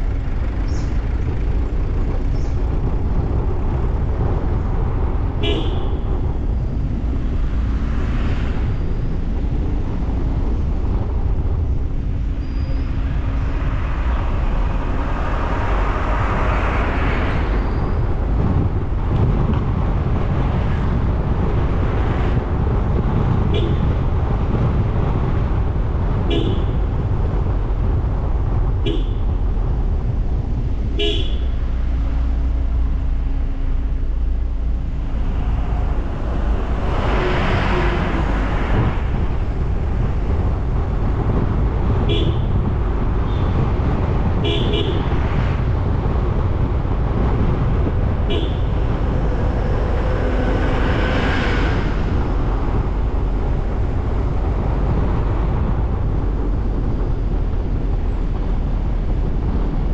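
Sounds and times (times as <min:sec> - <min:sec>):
car road and engine noise: 0:00.0 - 0:59.9
passing traffic rush: 0:00.0 - 0:59.9
vehicle horn toots: 0:05.4 - 0:06.2, 0:23.5 - 0:24.0, 0:26.3 - 0:26.8, 0:28.8 - 0:29.4, 0:31.0 - 0:31.6, 0:42.0 - 0:42.6, 0:44.4 - 0:45.2, 0:48.2 - 0:48.9.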